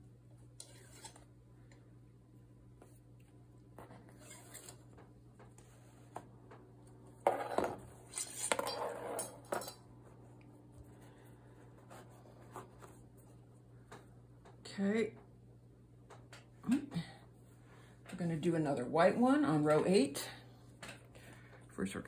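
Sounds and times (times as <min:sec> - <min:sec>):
metal tools clattering on table: 0:07.3 - 0:09.8.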